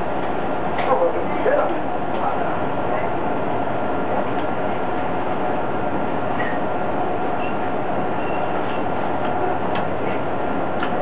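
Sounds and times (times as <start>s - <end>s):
railbus engine drone: 0.0s - 11.0s.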